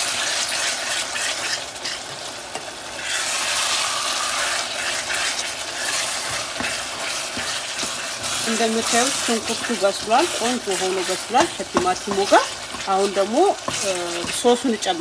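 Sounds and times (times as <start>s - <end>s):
onions and tomatoes sizzling in oil: 0.0s - 15.0s
wooden spatula stirring: 4.1s - 15.0s.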